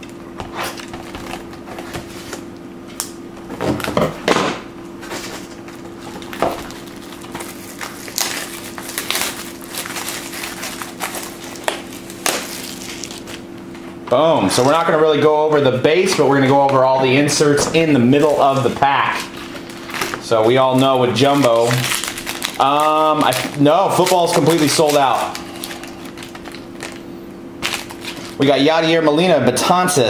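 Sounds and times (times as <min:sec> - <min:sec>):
steady low hum: 0:00.0 - 0:30.0
plastic wrapping crinkling: 0:05.2 - 0:13.5, 0:18.1 - 0:28.4
scissors cutting plastic: 0:06.3 - 0:13.4, 0:20.8 - 0:27.0.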